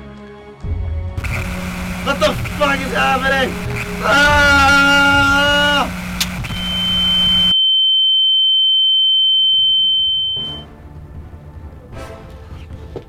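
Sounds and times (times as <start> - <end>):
high-pitched electronic tone: 1.2 - 10.6
man yelling: 2.1 - 6.0
sharp click: 6.1 - 6.5.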